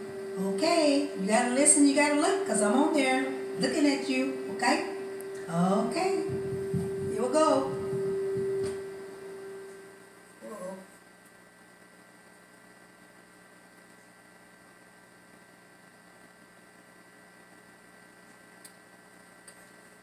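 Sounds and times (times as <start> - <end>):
held tone: 0.0 - 10.8
faint electrical hum: 0.0 - 20.0.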